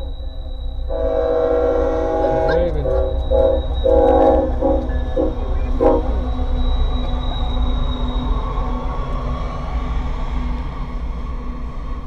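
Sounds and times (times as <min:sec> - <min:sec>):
locomotive air horn blasts: 0:00.0 - 0:06.3
train rumbling past: 0:00.0 - 0:12.0.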